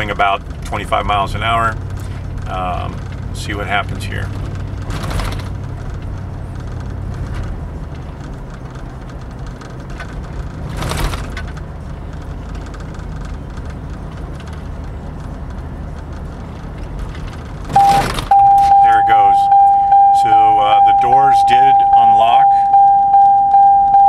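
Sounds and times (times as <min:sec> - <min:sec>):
engine and road noise: 0:00.0 - 0:24.0
steady warning chime: 0:17.8 - 0:24.0.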